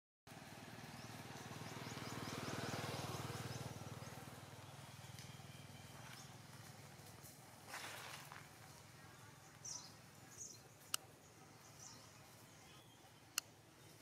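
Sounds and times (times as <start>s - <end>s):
low pulsing engine drone: 0.3s - 7.7s.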